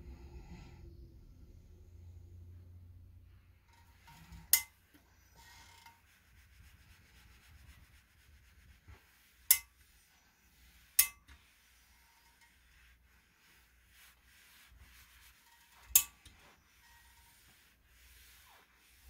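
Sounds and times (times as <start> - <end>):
iron rubbing on fabric: 3.6 - 19.0.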